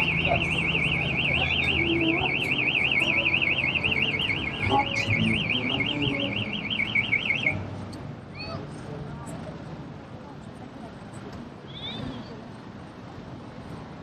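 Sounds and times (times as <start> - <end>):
electronic alarm warbling: 0.0 - 7.6.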